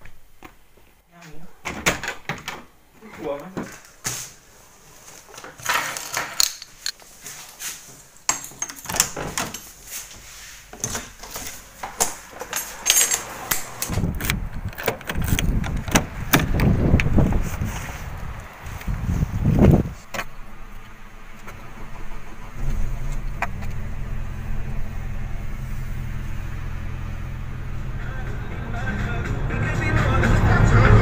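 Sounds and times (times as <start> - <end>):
handling clicks and rustling: 5.0 - 21.8.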